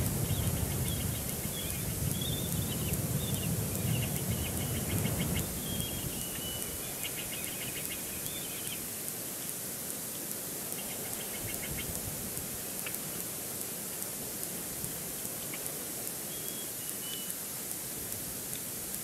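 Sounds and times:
wind rumble: 0.0 - 7.0
thin steady whistle: 16.3 - 17.4.

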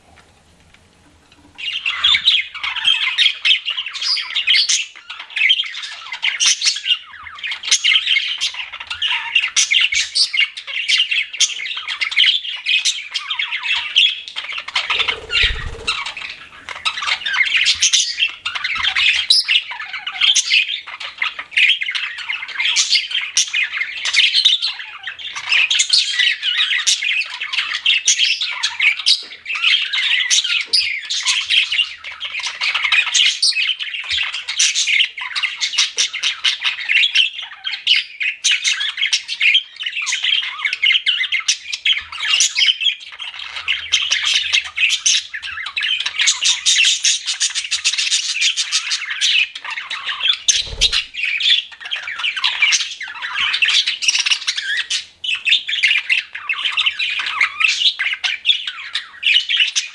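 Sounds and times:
budgerigar chattering: 14.9 - 16.1.

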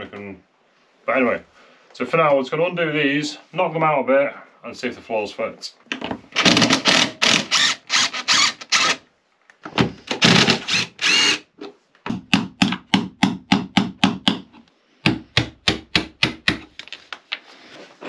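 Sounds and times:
cordless driver running: 10.2 - 11.4.

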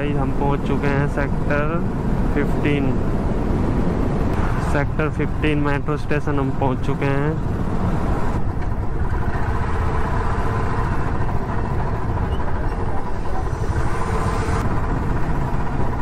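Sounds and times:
motorcycle engine at low speed: 0.0 - 16.0.

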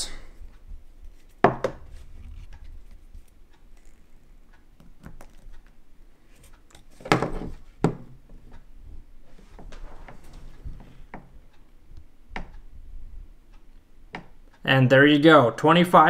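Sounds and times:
handling clicks and knocks: 6.7 - 8.4.

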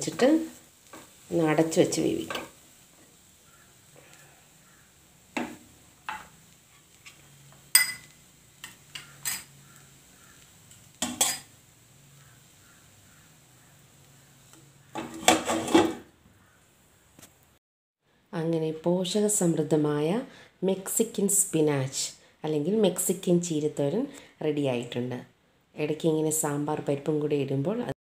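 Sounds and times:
cookware clinks and knocks: 7.8 - 8.1.

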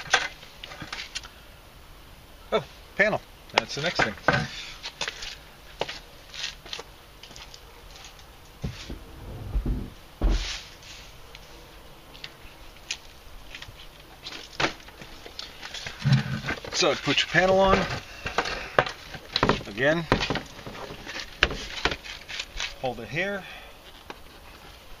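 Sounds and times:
clicks and rustles of handling: 3.5 - 9.0, 12.1 - 22.9, 23.8 - 25.0
heavy thump: 8.6 - 10.6
low rumble: 8.9 - 10.0.

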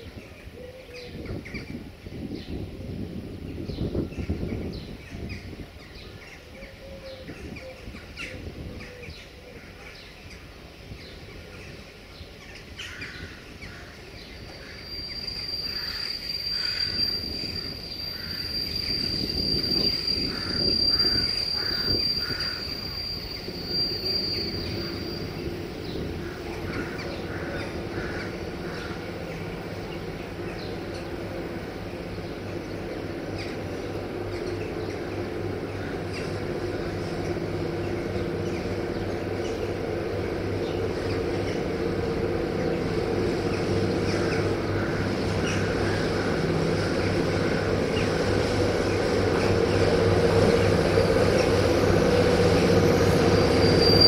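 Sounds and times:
high squeal from train: 0.0 - 12.0, 12.6 - 54.0
train wheels rumbling on rails: 0.0 - 54.0
locomotive low hum: 16.6 - 54.0.

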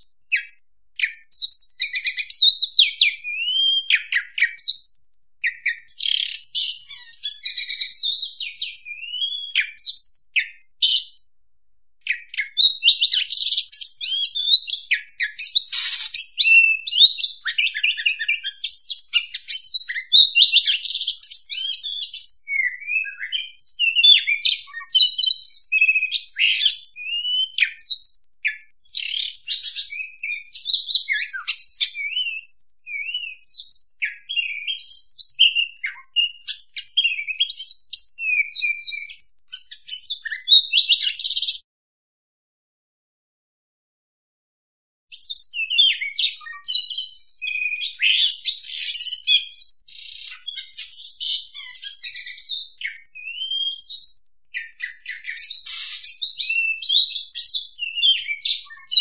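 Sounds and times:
bird singing whistles and trills: 0.0 - 11.3, 12.0 - 41.6, 45.1 - 59.0.

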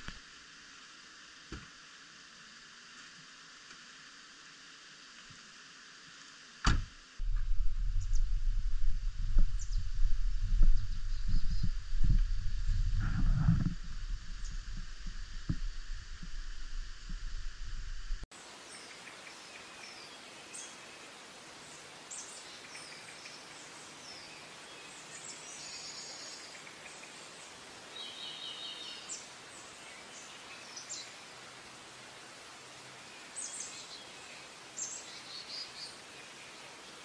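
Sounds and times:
forest ambience hiss: 0.0 - 37.0
small birds chirping: 18.6 - 31.5, 32.8 - 37.0.

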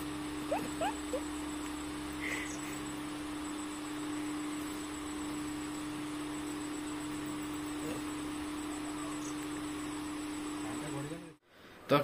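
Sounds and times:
electric fan motor hum: 0.0 - 12.0.

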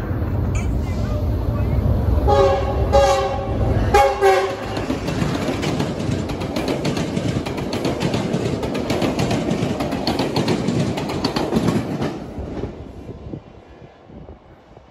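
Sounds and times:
train coaches rumbling past: 0.0 - 14.9
wheel clacks over track: 4.5 - 12.2.

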